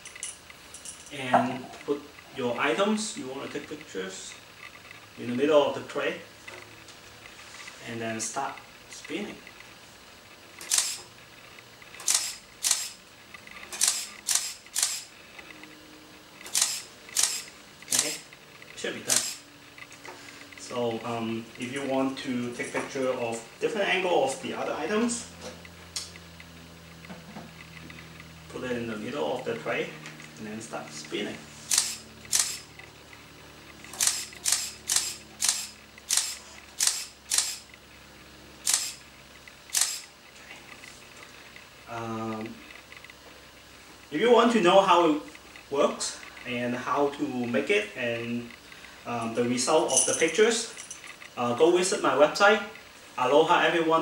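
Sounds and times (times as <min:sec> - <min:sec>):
camera shutter clicks: 0:10.6 - 0:11.1, 0:12.0 - 0:13.0, 0:13.7 - 0:15.1, 0:16.5 - 0:18.2, 0:19.1 - 0:19.4, 0:31.7 - 0:32.7, 0:33.9 - 0:37.8, 0:38.6 - 0:39.0, 0:39.7 - 0:40.1.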